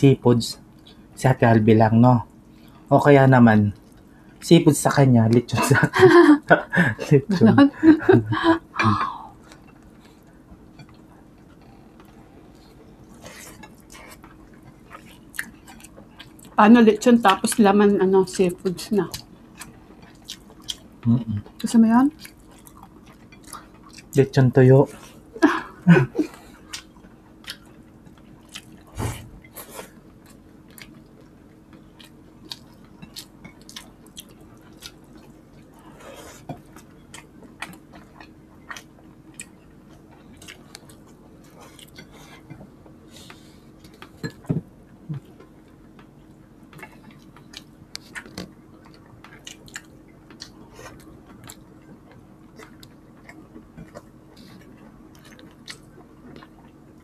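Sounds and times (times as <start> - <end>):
faint steady hum: 0.0 - 57.0
chewing and mouth sounds: 9.1 - 16.6, 19.0 - 25.3, 26.2 - 57.0.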